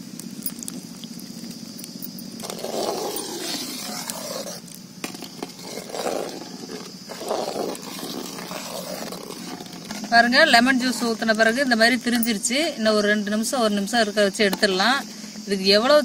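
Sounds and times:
stove burner roar: 0.0 - 13.3
milk boiling in a pot: 0.0 - 15.4
skimmer sloshing milk: 2.4 - 11.4.

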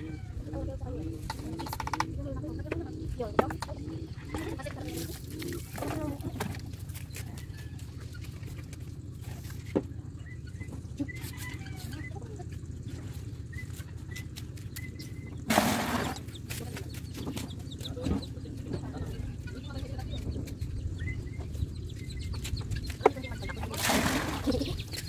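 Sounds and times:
chickens clucking: 0.0 - 25.0.

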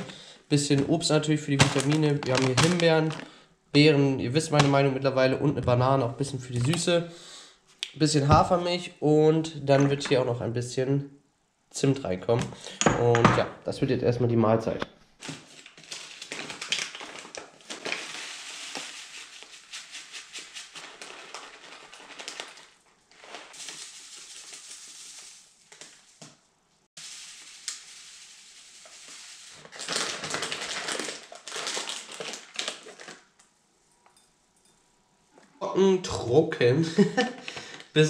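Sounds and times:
dry cereal pattering into a bowl: 1.5 - 3.3, 15.3 - 26.4, 27.0 - 33.3
plastic packets crinkling: 1.5 - 3.4, 15.2 - 26.2, 27.0 - 33.5.

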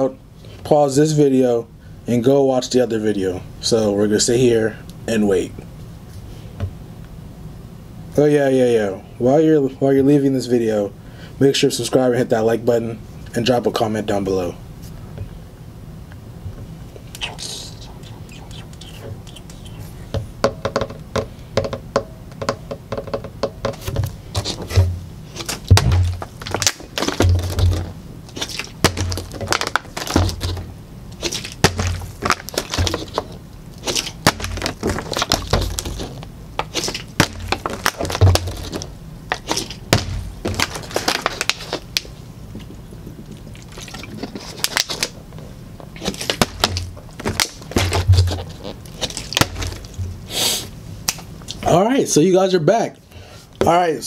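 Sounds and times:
hands knocking on wooden table: 20.1 - 24.1
plastic bottle knocking: 20.1 - 25.0, 25.6 - 28.0.

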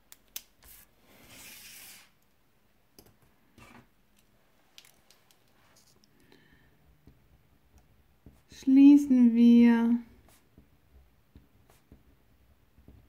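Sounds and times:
hand sliding over paper: 0.6 - 2.2
pen scratching on paper: 10.2 - 10.7.

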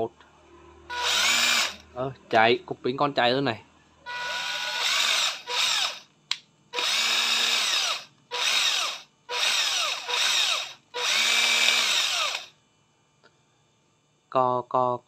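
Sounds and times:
cordless drill motor whining: 0.9 - 1.8, 4.1 - 6.1, 6.8 - 12.5.

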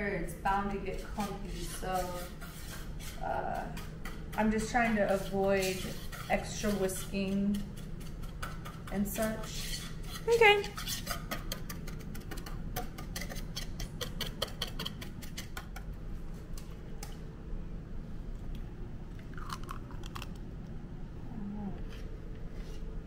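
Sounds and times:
utensil clicking against mixing bowl: 11.0 - 15.9.

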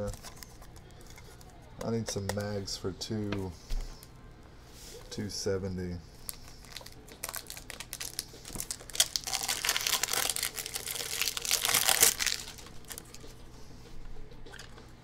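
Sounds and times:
plastic packaging crinkling: 6.3 - 13.3.

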